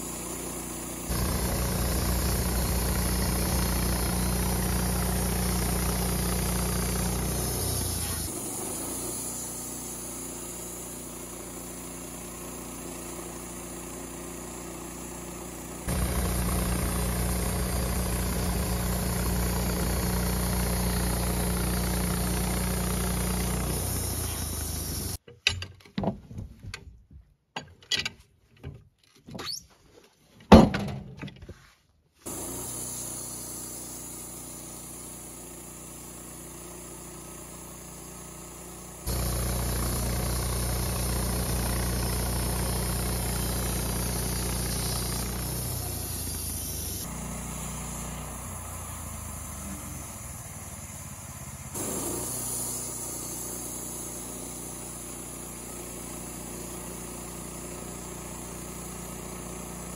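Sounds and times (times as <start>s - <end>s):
band blade cutting log: 0.0s - 14.4s, 15.8s - 25.2s, 51.7s - 59.9s
gasoline engine running: 0.0s - 25.2s, 32.3s - 59.9s.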